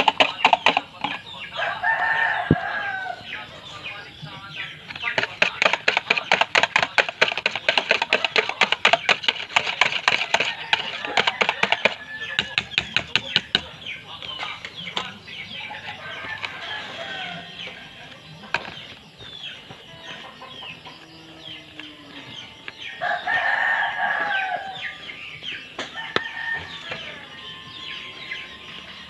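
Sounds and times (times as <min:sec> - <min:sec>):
chickens calling: 0:00.0 - 0:29.0
rooster crowing: 0:01.6 - 0:03.4, 0:10.4 - 0:12.4, 0:15.6 - 0:17.8, 0:22.9 - 0:25.1, 0:25.8 - 0:28.3.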